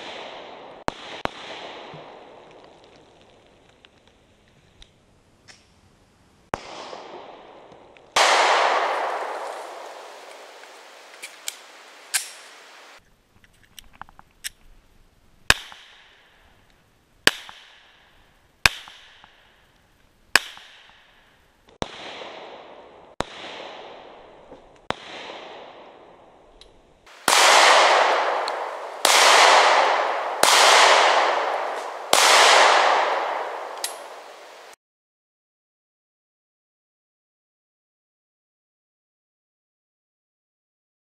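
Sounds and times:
pistol shots with echo: 0.0s - 2.4s, 6.5s - 12.5s, 21.8s - 26.2s, 27.1s - 34.7s.

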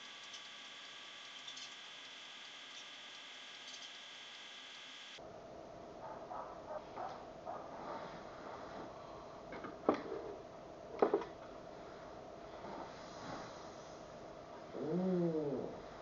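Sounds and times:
faint steady hum: 0.0s - 16.0s
bedding rustling: 7.5s - 9.2s.

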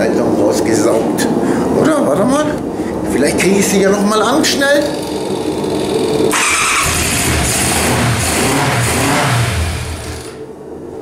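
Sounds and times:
motorcycle engine revving: 4.9s - 10.5s
motorcycle starter cranking: 5.0s - 10.4s.

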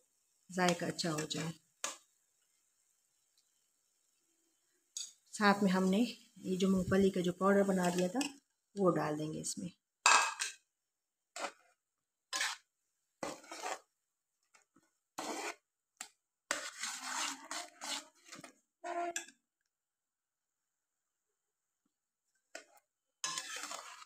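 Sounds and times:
metal spoon scraping a metal pan: 0.6s - 2.0s, 7.6s - 8.4s, 11.3s - 11.7s, 12.3s - 13.9s, 15.1s - 15.7s, 16.5s - 19.3s, 22.6s - 24.0s.

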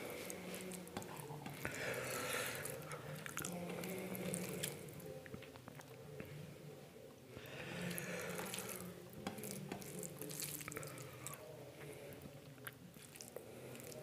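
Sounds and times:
wet chewing with mouth smacks: 8.4s - 11.4s, 12.4s - 14.0s.

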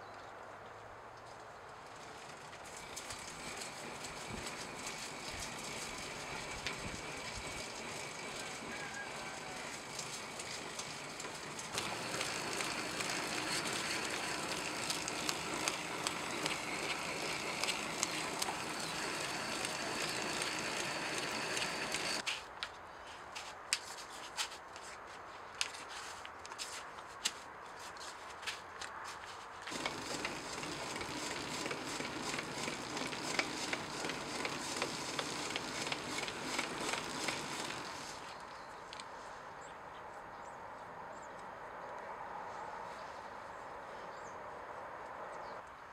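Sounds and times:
grinding wheel gritty hiss: 2.2s - 22.3s, 29.7s - 38.4s
scattered clicks: 2.5s - 22.2s.

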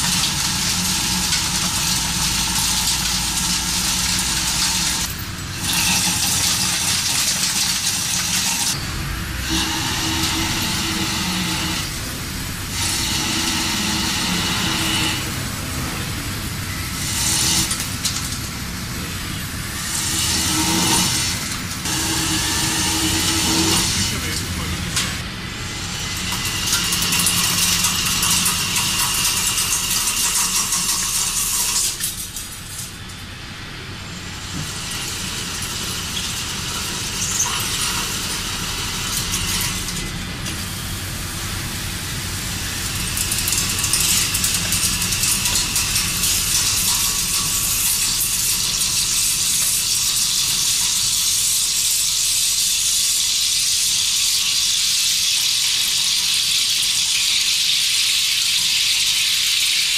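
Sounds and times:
low machine hum: 0.0s - 51.3s
metal cutting noise: 0.0s - 59.9s
coolant spray hiss: 33.9s - 59.9s.

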